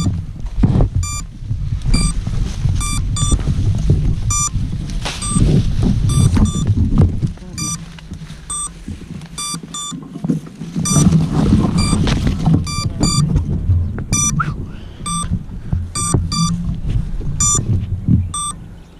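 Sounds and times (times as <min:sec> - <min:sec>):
low handling rumble: 0:00.0 - 0:18.9
rustling in grass: 0:00.0 - 0:18.9
short high beeps: 0:01.0 - 0:01.3, 0:01.9 - 0:02.2, 0:02.8 - 0:03.4, 0:04.3 - 0:04.6, 0:05.2 - 0:05.4, 0:06.1 - 0:06.7, 0:07.6 - 0:07.8, 0:08.5 - 0:08.8, 0:09.4 - 0:10.0, 0:10.9 - 0:11.1, 0:11.8 - 0:12.0, 0:12.6 - 0:13.3, 0:14.2 - 0:15.3, 0:16.0 - 0:16.6, 0:17.4 - 0:17.7, 0:18.3 - 0:18.6.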